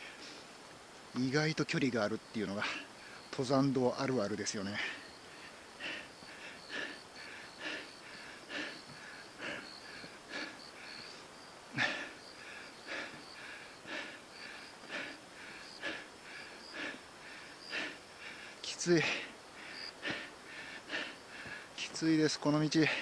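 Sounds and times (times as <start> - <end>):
heavy breathing: 2.6 - 3.3, 4.6 - 21.9, 22.8 - 23.0.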